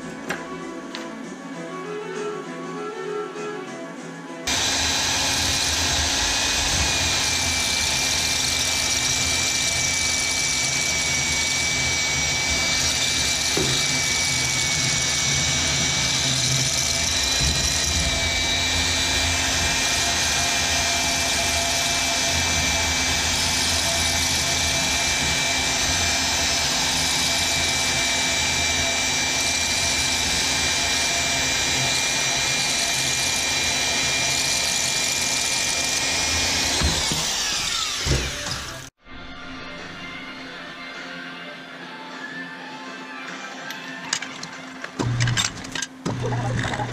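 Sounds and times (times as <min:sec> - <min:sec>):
band saw cutting metal: 0:04.5 - 0:39.0.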